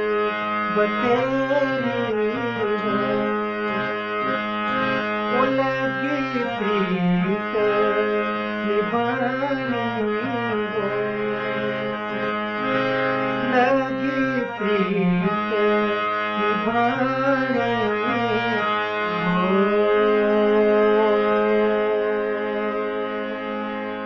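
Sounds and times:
harmonium chords: 0:00.0 - 0:24.0
man singing folk song: 0:00.7 - 0:03.7, 0:05.3 - 0:11.4.

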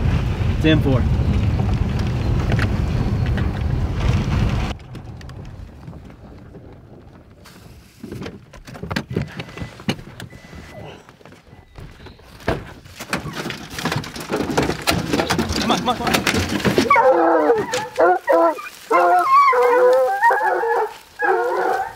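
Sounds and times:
low road rumble in cab: 0:00.0 - 0:17.0
clatter and rustling: 0:01.2 - 0:20.9
knocks and thuds: 0:11.7 - 0:17.0.

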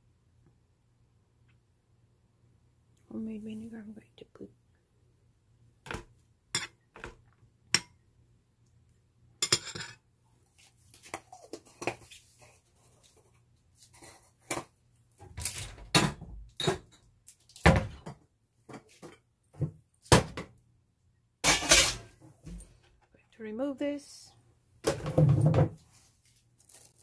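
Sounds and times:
metal spoon clinking on ceramic plate: 0:09.4 - 0:10.0
tableware clattering: 0:09.4 - 0:10.0, 0:16.0 - 0:17.0, 0:21.4 - 0:22.2.

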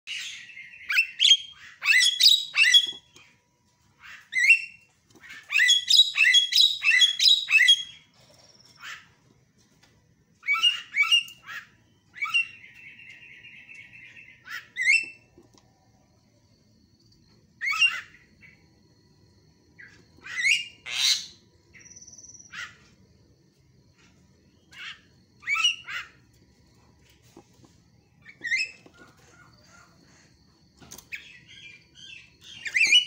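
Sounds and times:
bird harsh chirps and whistles: 0:00.1 - 0:03.2, 0:04.0 - 0:09.2, 0:10.4 - 0:15.3, 0:17.6 - 0:18.6, 0:19.8 - 0:23.0, 0:24.6 - 0:26.2, 0:28.2 - 0:30.2, 0:31.1 - 0:33.0.

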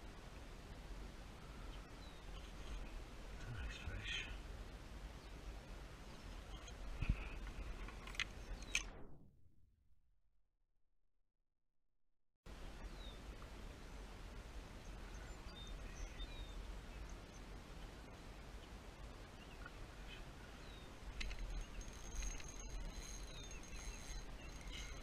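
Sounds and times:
steady low rumble: 0:00.0 - 0:09.3, 0:12.5 - 0:25.0
bird chirps: 0:19.4 - 0:25.0.

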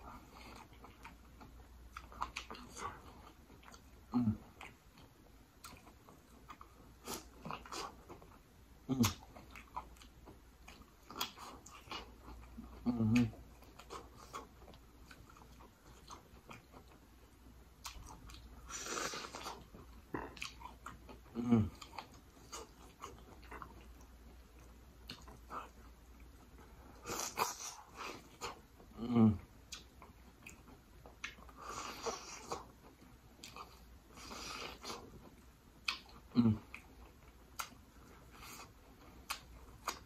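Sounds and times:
mouth clicks and smacks: 0:29.5 - 0:40.0.

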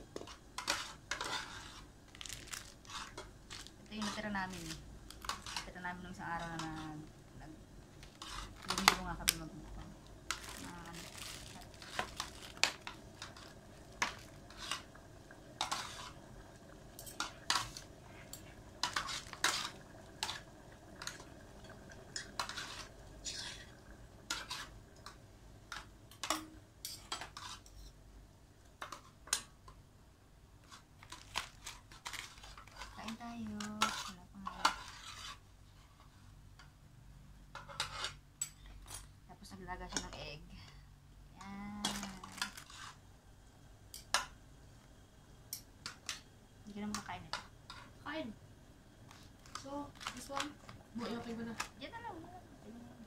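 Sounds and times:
metal cutlery clinking on a pot: 0:24.3 - 0:27.9.

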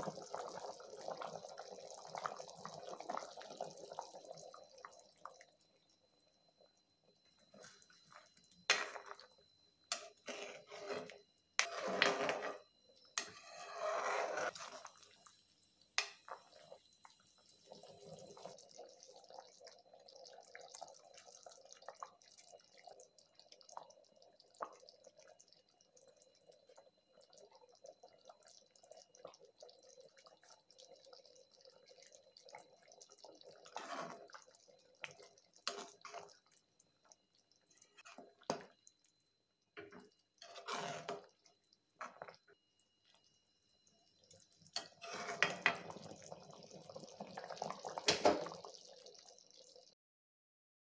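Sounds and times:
gravy bubbling in a pan: 0:00.0 - 0:50.0
spoon stirring and scraping: 0:07.5 - 0:09.3, 0:09.9 - 0:15.2, 0:33.6 - 0:36.4, 0:39.9 - 0:41.3, 0:44.8 - 0:46.0.

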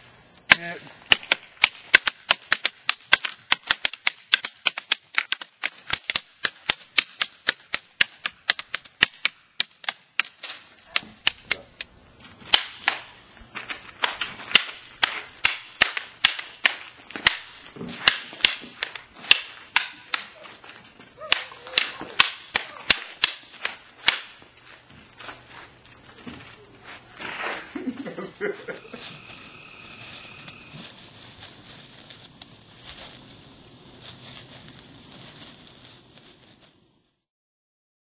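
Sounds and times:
wooden sticks clacking: 0:00.4 - 0:29.6.

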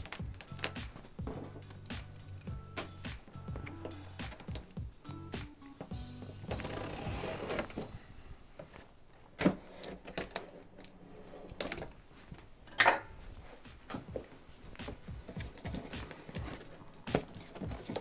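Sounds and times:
scissors clicking and snapping: 0:00.0 - 0:01.0, 0:04.2 - 0:05.2
scissors scraping tape and cardboard: 0:06.5 - 0:07.8, 0:15.2 - 0:18.0.

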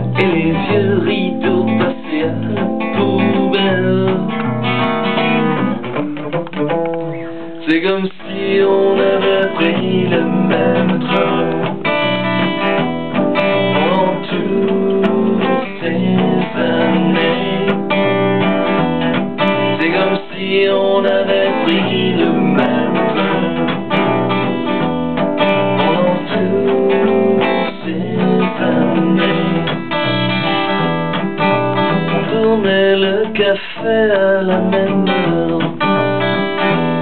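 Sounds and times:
electric bass: 0:00.0 - 0:07.5, 0:09.0 - 0:20.0
acoustic guitar strumming: 0:00.0 - 0:37.0.

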